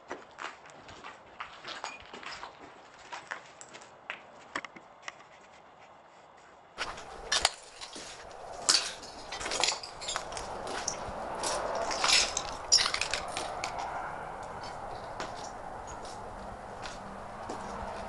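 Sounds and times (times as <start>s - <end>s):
footsteps crunching over debris: 0.0s - 5.0s, 6.8s - 18.0s
clicks clinks and snaps: 6.9s - 16.2s.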